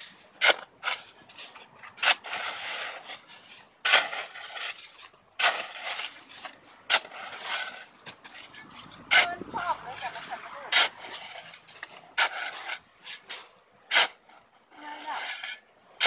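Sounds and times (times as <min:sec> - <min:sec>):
shovel blade scraping snow: 0:00.0 - 0:16.0
shovel crunching into snow: 0:00.0 - 0:16.0.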